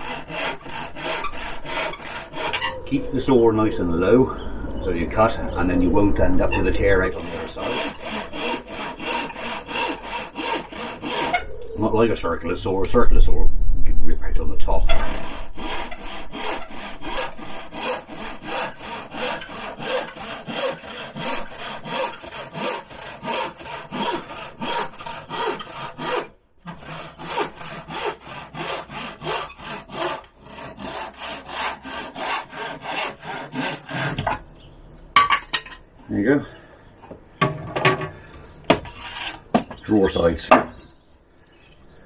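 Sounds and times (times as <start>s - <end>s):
hand saw cutting wood: 0.0s - 2.8s, 6.6s - 11.4s, 14.9s - 34.4s.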